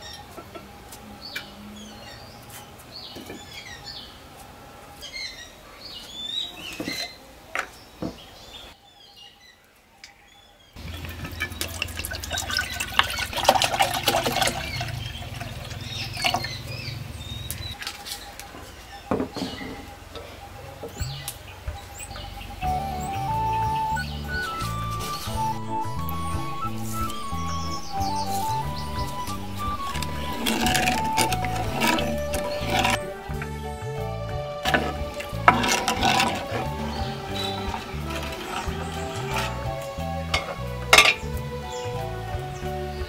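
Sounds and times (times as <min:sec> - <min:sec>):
small birds chirping: 0:00.0 - 0:13.6, 0:14.3 - 0:43.0
liquid sound with dense crackling: 0:10.8 - 0:16.7.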